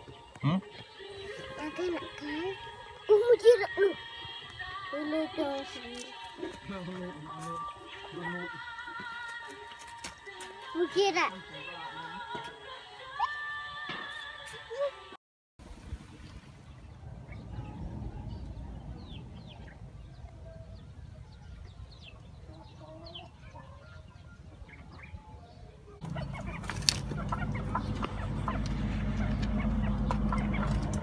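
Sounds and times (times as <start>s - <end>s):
hens and rooster clucking: 21.0s - 25.2s, 26.0s - 31.0s.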